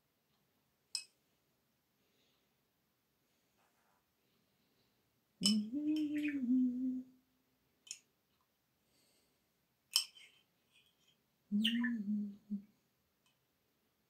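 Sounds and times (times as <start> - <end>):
woman humming low note: 5.4 - 7.1, 11.5 - 12.6.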